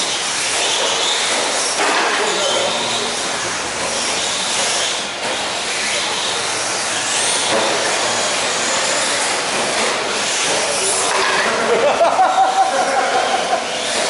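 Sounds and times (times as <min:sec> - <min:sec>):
high-pitched motor whines: 0:00.0 - 0:14.0.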